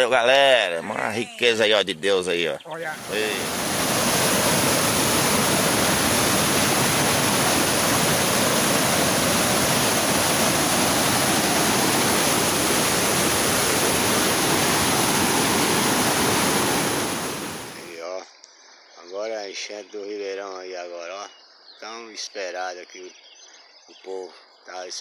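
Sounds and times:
floodwater rushing over ledge: 0:02.8 - 0:18.0.

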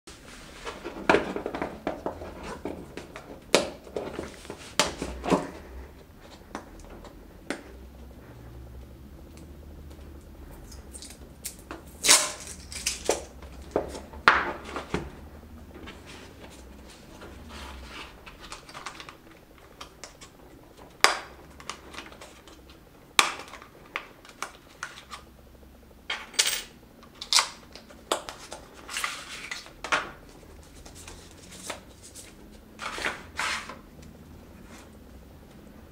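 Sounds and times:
cardboard rustling: 0:00.1 - 0:06.5, 0:13.2 - 0:21.0, 0:28.4 - 0:33.8.

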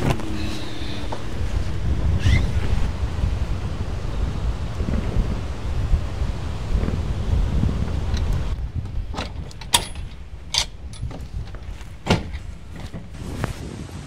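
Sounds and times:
wind buffeting microphone: 0:00.0 - 0:14.0
sharp clicks and knocks: 0:08.1 - 0:13.1.

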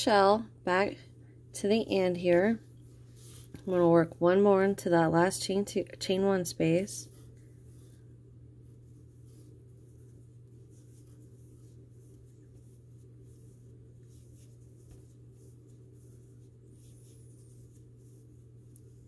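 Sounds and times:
steady low hum: 0:00.0 - 0:19.0
yarn rustling with crochet hook: 0:01.8 - 0:04.4, 0:05.2 - 0:19.0
soft scratch of stitches: 0:07.0 - 0:19.0.

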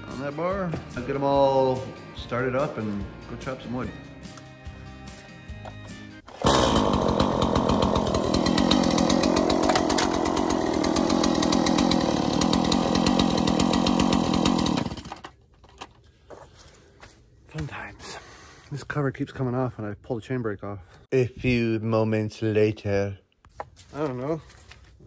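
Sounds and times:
chainsaw running: 0:06.3 - 0:15.3.

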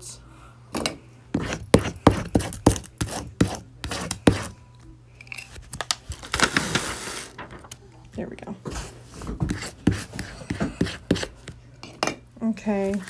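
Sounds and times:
plastic film rustling: 0:05.6 - 0:07.9
plastic film crackling: 0:05.7 - 0:07.9.

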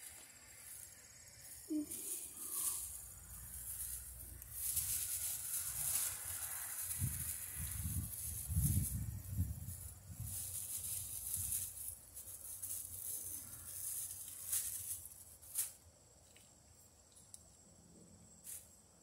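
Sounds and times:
insects chirring: 0:00.0 - 0:19.0
rustling handling noise: 0:01.7 - 0:15.9.

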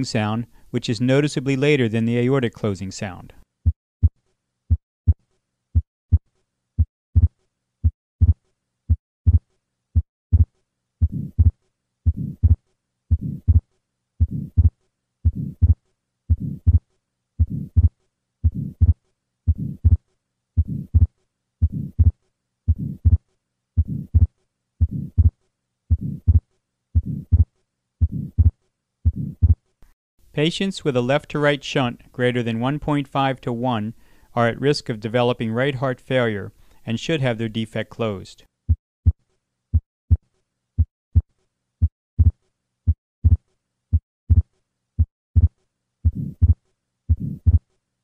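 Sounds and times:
heartbeat: 0:05.8 - 0:06.2, 0:06.8 - 0:09.4, 0:10.0 - 0:13.6, 0:14.2 - 0:16.8, 0:17.4 - 0:20.0, 0:20.6 - 0:23.2, 0:23.8 - 0:29.6, 0:40.8 - 0:47.6
heart murmur: 0:07.2 - 0:08.4, 0:10.0 - 0:13.6, 0:14.2 - 0:16.8, 0:17.4 - 0:20.0, 0:20.6 - 0:23.2, 0:23.8 - 0:26.4, 0:27.0 - 0:29.6, 0:42.2 - 0:43.4, 0:44.3 - 0:44.5, 0:45.4 - 0:47.6.

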